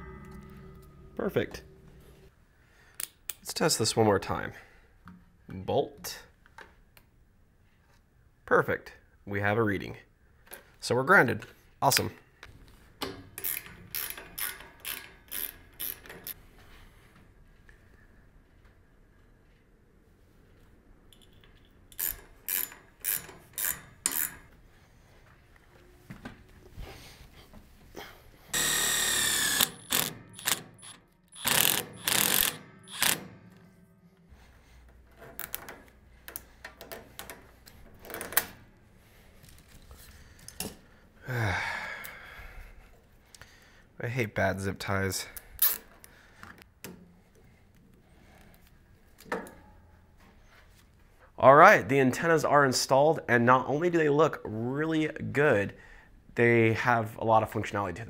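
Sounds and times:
cordless drill whining: 28.5s - 33.2s
zip tie ratcheting: 28.8s - 33.2s.

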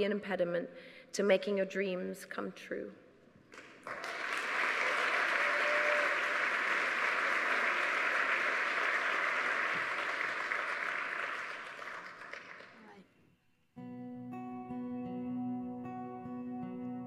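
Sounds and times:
audience applauding: 3.5s - 12.9s.

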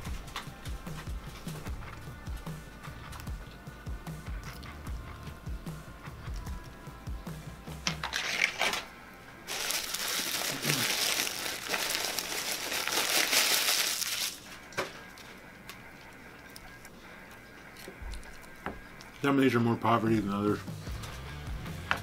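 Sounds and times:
paper wrapper crinkling: 8.0s - 8.9s, 9.5s - 15.3s.

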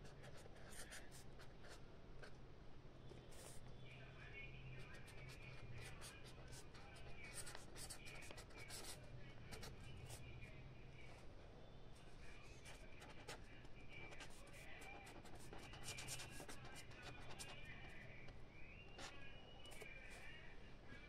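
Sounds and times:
pen scratching on paper: 0.0s - 2.3s, 4.9s - 10.2s, 12.6s - 13.4s, 14.0s - 17.6s.

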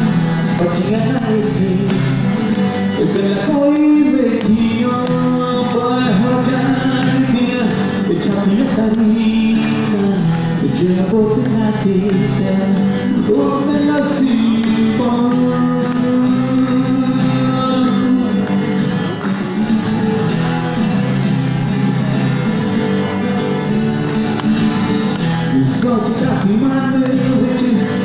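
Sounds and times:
man singing: 0.0s - 18.6s, 25.4s - 28.0s
strummed acoustic guitar: 0.0s - 28.0s.

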